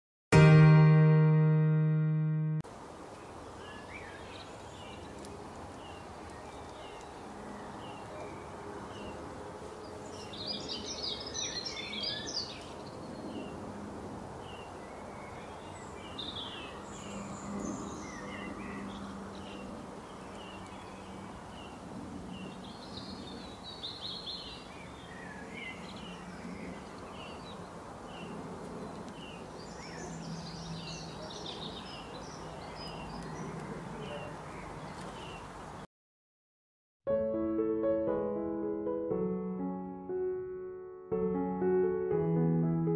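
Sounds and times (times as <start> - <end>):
bird song: 3.1 - 9.2, 9.8 - 13.6, 14.4 - 35.8
small birds chirping: 3.1 - 9.2, 14.4 - 35.8.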